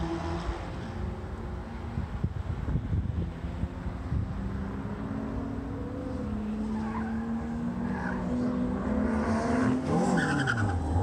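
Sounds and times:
car engine revving: 0:04.0 - 0:11.0
tyre squeals: 0:09.9 - 0:11.0.

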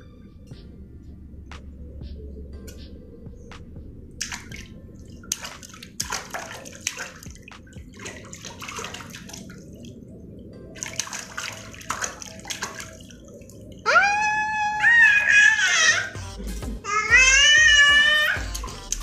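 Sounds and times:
baby splashing water in a tub: 0:04.2 - 0:10.0, 0:10.7 - 0:16.1, 0:16.9 - 0:19.0.

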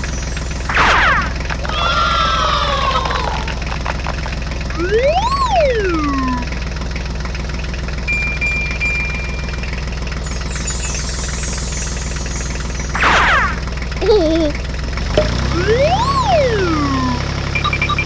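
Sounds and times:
diesel engine droning: 0:00.0 - 0:18.0
whistle-like tone: 0:10.2 - 0:13.7.

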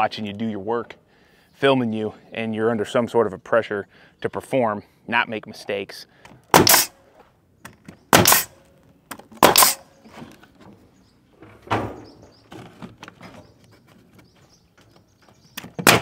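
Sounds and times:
pneumatic nail gun firing: 0:06.5 - 0:06.9, 0:08.1 - 0:08.6, 0:09.4 - 0:09.9, 0:15.8 - 0:16.0.

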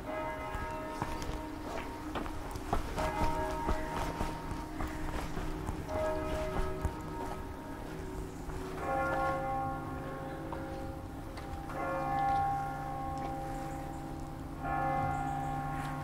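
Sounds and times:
church bells ringing: 0:00.0 - 0:16.0.

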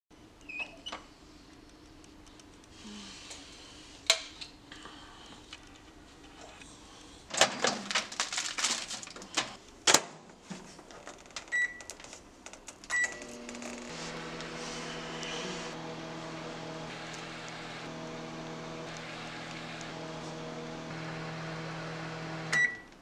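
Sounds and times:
food clattering and rustling: 0:07.4 - 0:09.6
keypad beeps: 0:11.5 - 0:11.9, 0:12.9 - 0:13.2, 0:22.5 - 0:22.9
microwave humming: 0:12.9 - 0:23.0.

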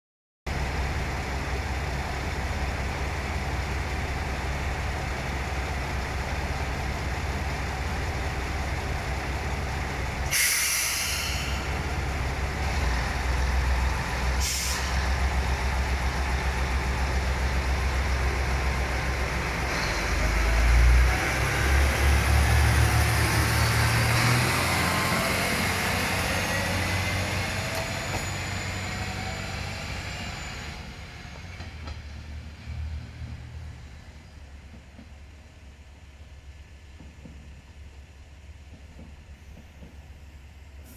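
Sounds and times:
diesel railcar engine hum: 0:00.5 - 0:40.9
air brake hisses: 0:10.2 - 0:11.8, 0:14.4 - 0:15.1.

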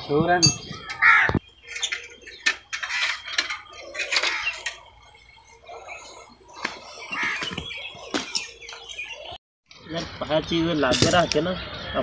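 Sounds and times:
metal tools clinking: 0:00.4 - 0:01.0, 0:01.6 - 0:05.6.

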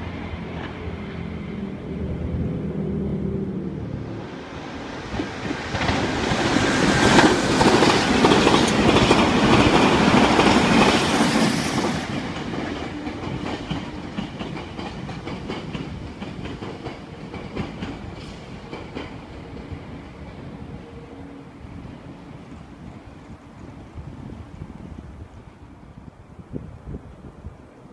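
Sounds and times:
electric train passing: 0:00.0 - 0:27.9.

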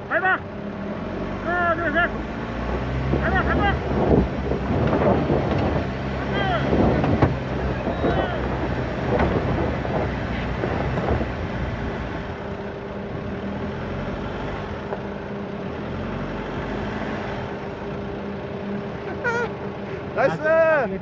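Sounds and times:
diesel engine running: 0:00.0 - 0:21.0
tyres on gravel: 0:01.5 - 0:13.3.

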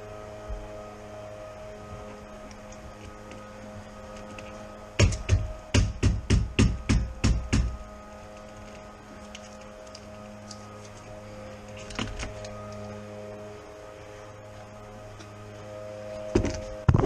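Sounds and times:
steady electrical hum: 0:00.0 - 0:17.0
sharp knocks on windshield: 0:05.0 - 0:07.8.

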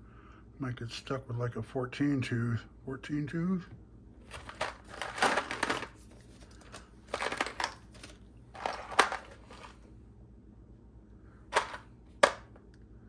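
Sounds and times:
metal gears clinking and rattling: 0:04.3 - 0:06.0, 0:06.6 - 0:09.7.

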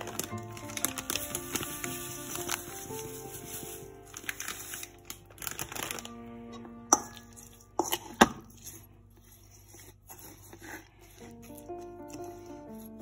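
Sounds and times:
background music: 0:00.0 - 0:13.0
metal spoon stirring in a bowl: 0:06.9 - 0:13.0.

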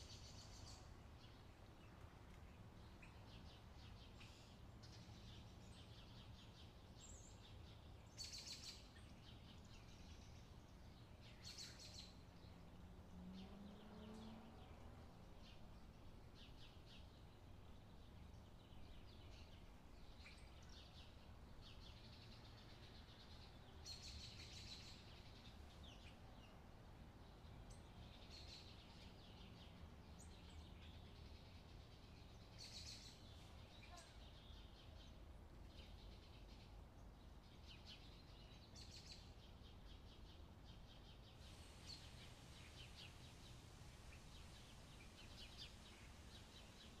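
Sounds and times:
faint bird chirps: 0:27.6 - 0:35.1.

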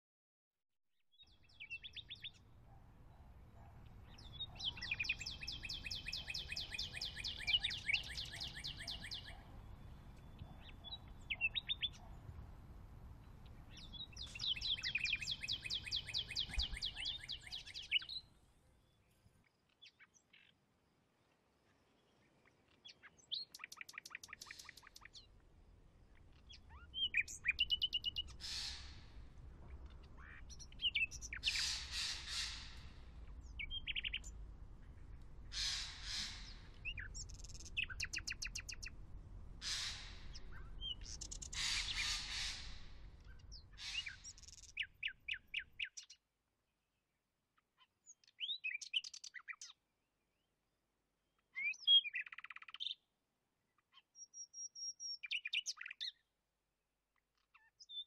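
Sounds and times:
birds chirping in trills: 0:01.2 - 0:12.3, 0:13.2 - 0:18.3, 0:26.1 - 0:46.1.

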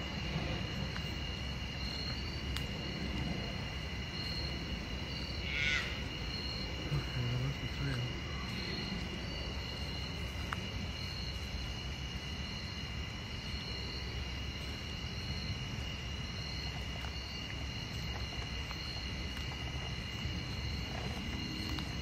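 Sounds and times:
low steady rumble: 0:00.0 - 0:05.4
insects droning: 0:00.0 - 0:22.0.

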